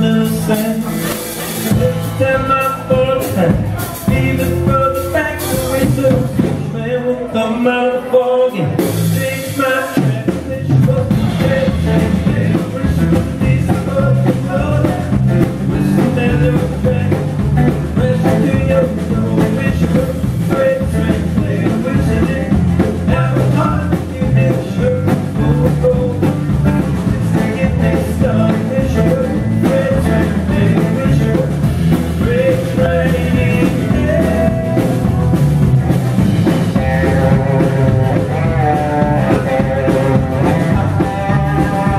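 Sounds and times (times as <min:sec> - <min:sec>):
drum kit: 0:00.0 - 0:06.9, 0:08.6 - 0:41.9
acoustic guitar: 0:00.0 - 0:41.9
electric bass: 0:00.0 - 0:41.9
electric guitar: 0:08.6 - 0:41.9.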